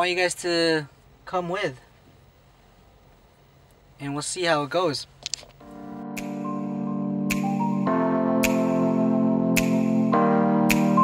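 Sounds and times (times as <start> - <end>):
sharp percussive hits: 5.6 - 9.0, 9.6 - 10.1
sustained electronic chords: 5.6 - 11.0.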